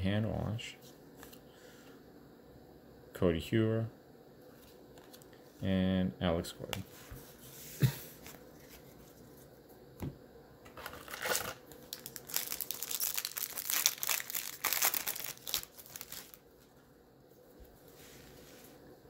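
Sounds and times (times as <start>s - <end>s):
foil wrapper tearing and crinkling: 10.8s - 16.4s.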